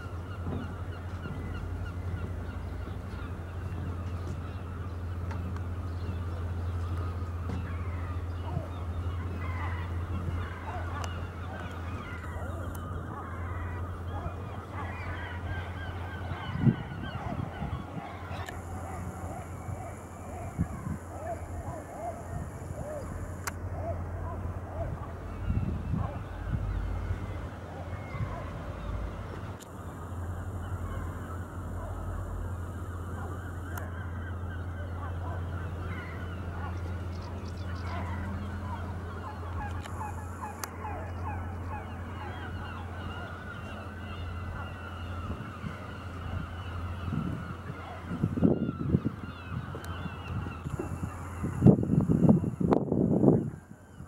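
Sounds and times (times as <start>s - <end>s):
birds honking: 0.0s - 54.0s
low hum: 17.4s - 48.1s.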